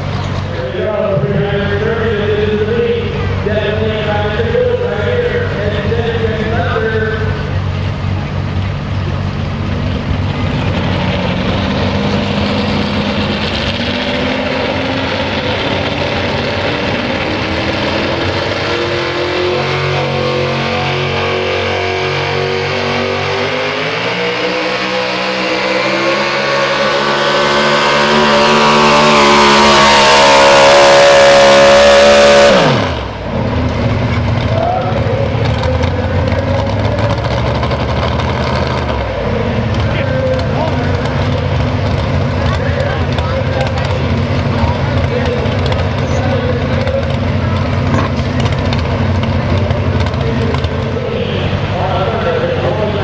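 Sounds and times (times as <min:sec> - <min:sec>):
truck engine loping idle and revving: 0:00.0 - 0:53.0.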